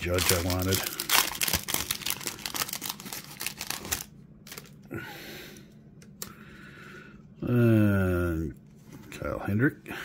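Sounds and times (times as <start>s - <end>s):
cards rustling: 0.0s - 4.8s
foil wrapper crinkling: 0.0s - 4.8s.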